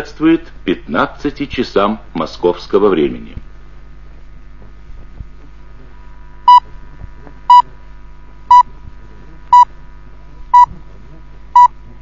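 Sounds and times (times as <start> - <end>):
faint steady hum: 0.0 - 12.0
radio time signal beeps: 7.5 - 7.7, 10.5 - 10.7.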